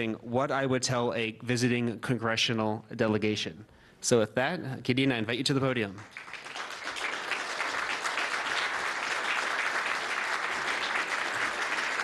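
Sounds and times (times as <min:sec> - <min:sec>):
audience applauding: 0:06.0 - 0:12.0.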